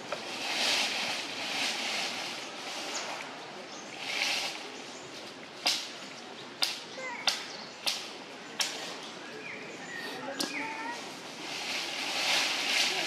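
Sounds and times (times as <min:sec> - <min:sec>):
outdoor hiss: 0:00.0 - 0:06.0, 0:10.2 - 0:13.0.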